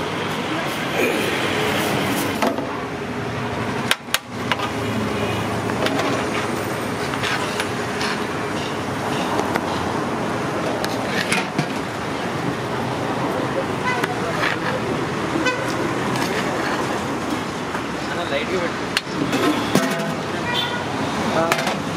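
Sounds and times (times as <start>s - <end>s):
roadside traffic: 0.0s - 21.9s.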